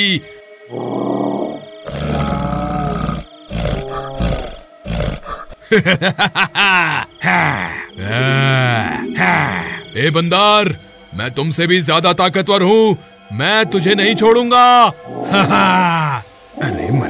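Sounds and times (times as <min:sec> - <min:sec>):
man making animal-like cries: 0:00.7 - 0:04.6, 0:06.6 - 0:09.9, 0:15.2 - 0:17.0.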